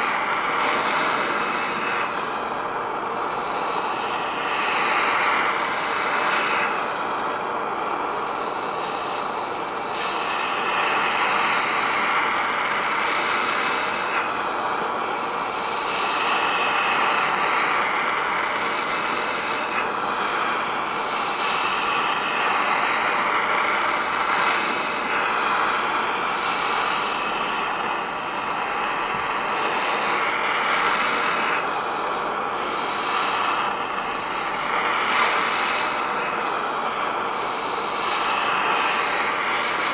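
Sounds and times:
heat gun blowing air: 0:00.0 - 0:39.9.

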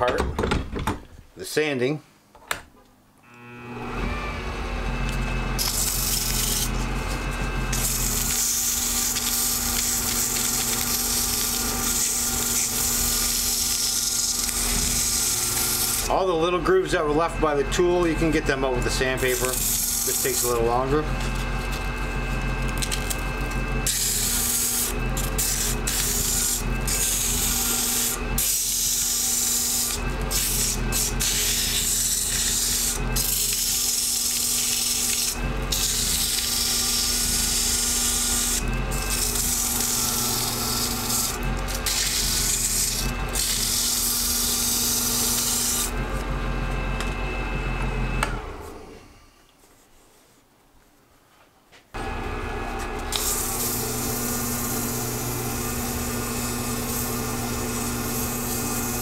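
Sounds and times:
lathe motor hum: 0:03.3 - 0:49.0, 0:52.0 - 0:59.0
sandpaper hissing on spinning lathe: 0:05.5 - 0:46.1, 0:53.1 - 0:59.0.

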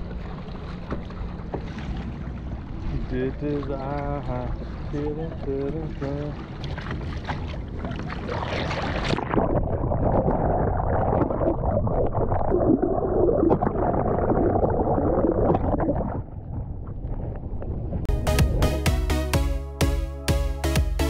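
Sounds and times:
waves splashing: 0:00.0 - 0:09.4
muffled underwater gurgling: 0:02.8 - 0:06.8, 0:07.4 - 0:17.6.

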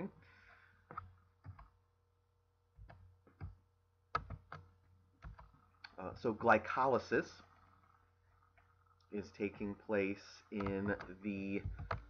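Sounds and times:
low steady hum: 0:00.0 - 0:12.0
computer mouse clicking: 0:00.9 - 0:01.7, 0:02.8 - 0:05.6, 0:10.5 - 0:12.0.

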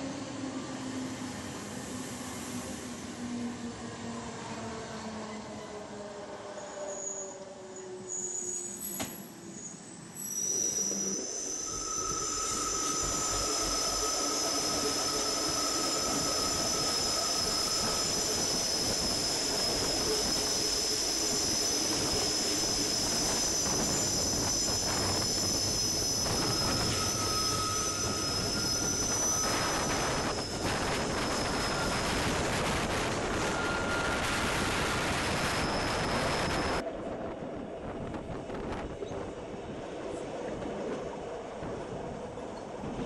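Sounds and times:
train wheels squealing: 0:04.8 - 0:36.8.

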